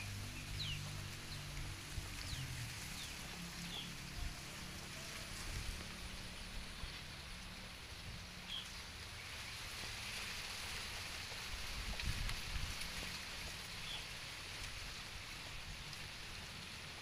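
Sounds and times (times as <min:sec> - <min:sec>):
outdoor hiss: 0:00.0 - 0:17.0.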